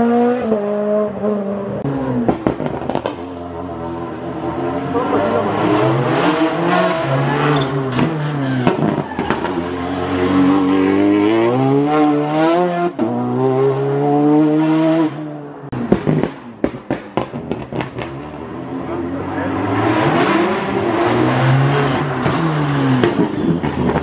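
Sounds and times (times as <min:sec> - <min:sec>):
car engine revving: 0:00.0 - 0:24.0.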